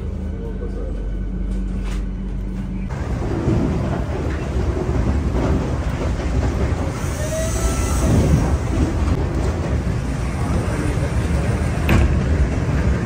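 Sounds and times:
train rumbling on rails: 0:00.0 - 0:13.0.

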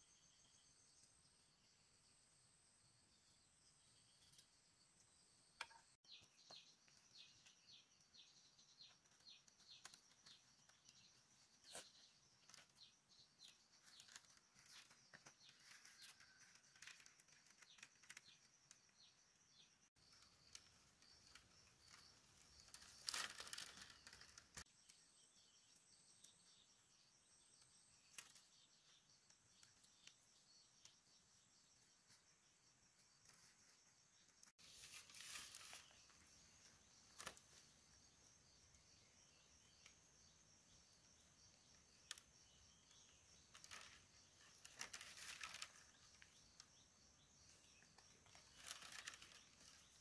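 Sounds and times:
rustle: 0:20.1 - 0:25.0, 0:32.9 - 0:50.0.

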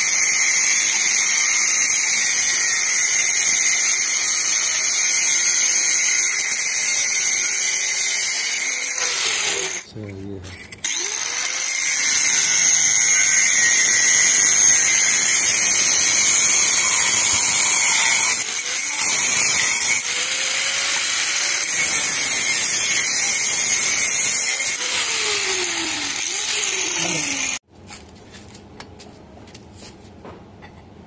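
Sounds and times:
angle grinder grinding metal: 0:00.0 - 0:27.6.

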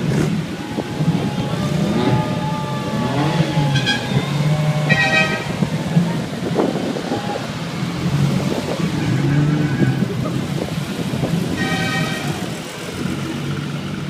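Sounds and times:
sports car engines running: 0:00.0 - 0:14.0
car horn toot: 0:03.7 - 0:05.6, 0:11.5 - 0:12.4.

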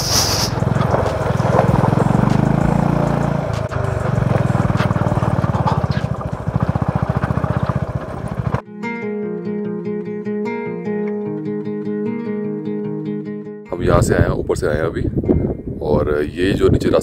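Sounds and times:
motorcycle engine running: 0:00.0 - 0:08.6.

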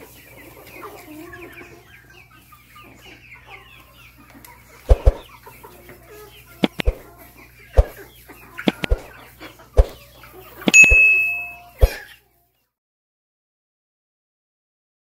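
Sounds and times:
chickens clucking softly: 0:00.0 - 0:10.8, 0:11.6 - 0:12.6.

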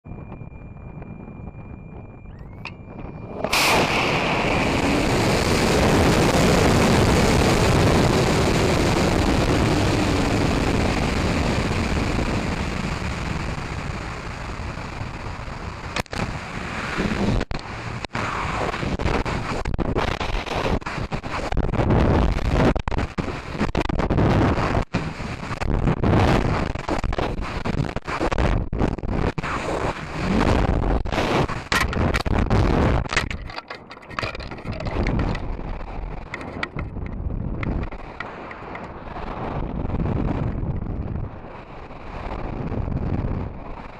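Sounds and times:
gusty wind buffeting microphone: 0:00.1 - 0:43.9
rocket motor burning: 0:02.6 - 0:21.7
air rushing over airframe: 0:03.3 - 0:05.8.

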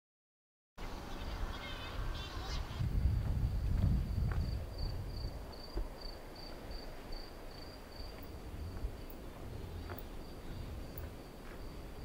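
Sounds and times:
low rumble: 0:02.0 - 0:05.6, 0:08.0 - 0:11.4
cricket chirping: 0:03.0 - 0:12.0.

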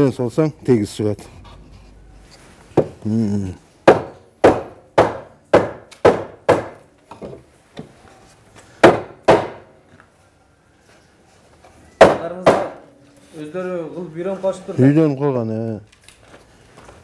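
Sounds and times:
mallet knocking wood: 0:02.8 - 0:03.0, 0:03.8 - 0:07.4, 0:08.8 - 0:09.7, 0:12.0 - 0:12.8.

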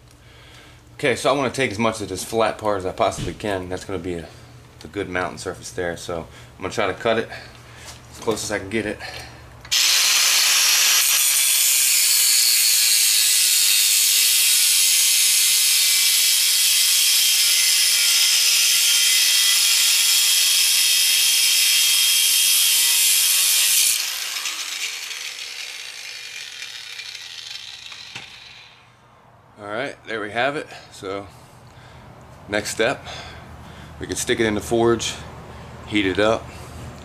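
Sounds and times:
angle grinder cutting metal: 0:09.7 - 0:29.0.

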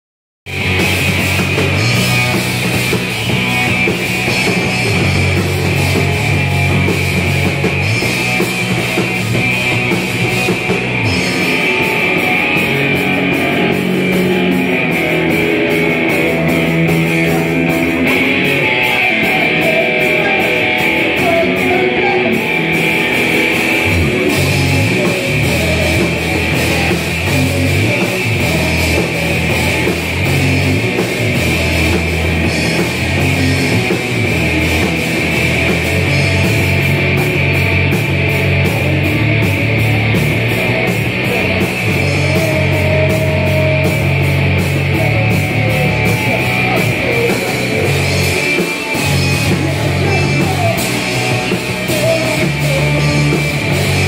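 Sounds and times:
drum kit: 0:00.5 - 0:54.0
electric guitars: 0:00.5 - 0:54.0.

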